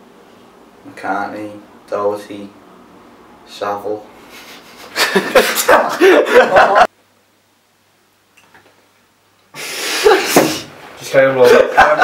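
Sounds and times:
breathy laughter: 4.4 - 6.9, 9.6 - 10.6.

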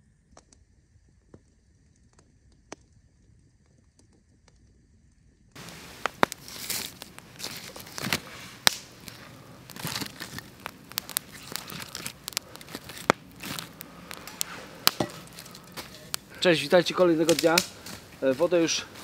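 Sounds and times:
sticks snapping: 5.6 - 19.0
twigs rustling and crackling: 5.6 - 19.0.

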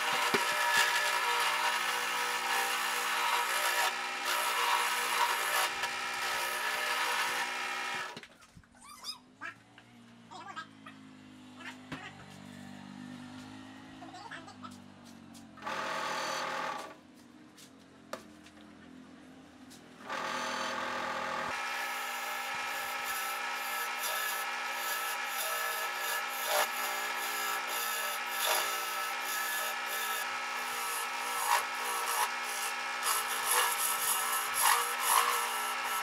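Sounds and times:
wood lathe whining: 0.0 - 8.2, 15.6 - 16.9, 20.0 - 36.0.

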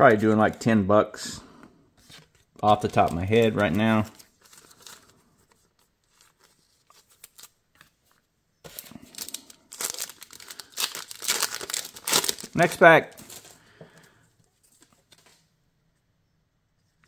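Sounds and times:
foil wrapper crinkling and tearing: 2.6 - 5.2, 6.0 - 7.6, 8.7 - 13.6.

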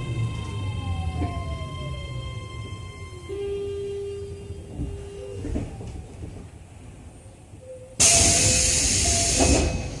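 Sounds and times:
low train rumble: 0.0 - 10.0
compressed air hiss: 8.0 - 9.7.

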